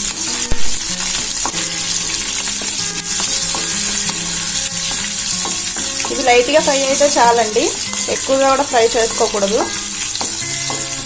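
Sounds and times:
spices sizzling in hot oil: 0.0 - 11.0
spatula knocking and scraping pan: 2.6 - 11.0.

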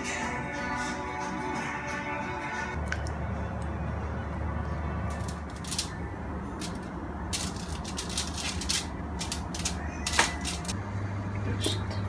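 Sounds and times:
aluminium foil crinkling: 5.1 - 6.0, 6.6 - 10.8.

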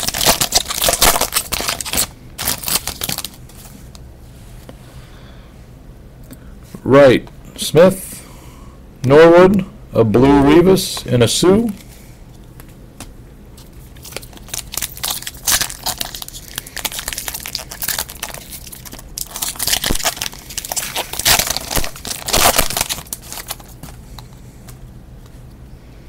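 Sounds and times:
foil wrapper tearing and crinkling: 0.0 - 3.5, 13.9 - 24.0.

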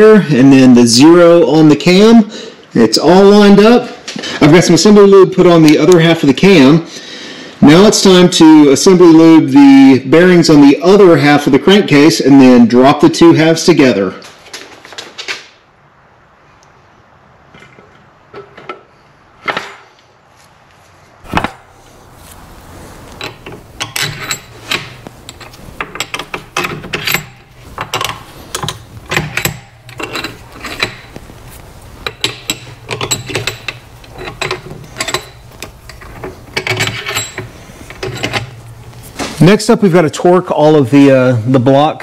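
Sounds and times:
bolts clicking and rattling: 21.3 - 39.4.

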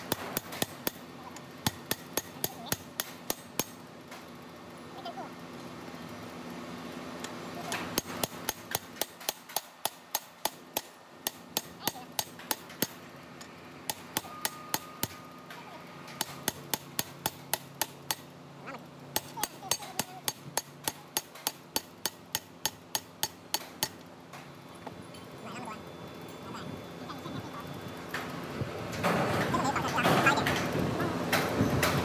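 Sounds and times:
sharp metal taps: 1.6 - 4.2, 7.7 - 15.3, 19.1 - 24.5.

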